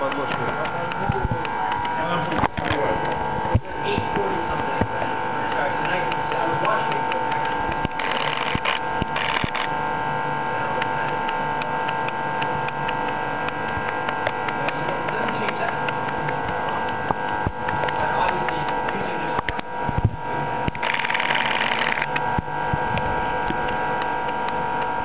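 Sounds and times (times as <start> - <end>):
machine humming: 0.0 - 25.0
faint irregular ticks: 5.5 - 9.7, 10.8 - 19.7, 20.7 - 25.0.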